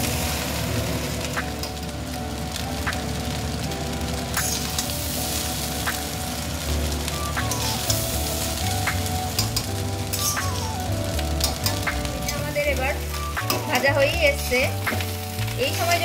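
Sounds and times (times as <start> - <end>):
rice sizzling in a pan: 0.0 - 16.0
metal spatula scraping a pan: 9.4 - 10.8.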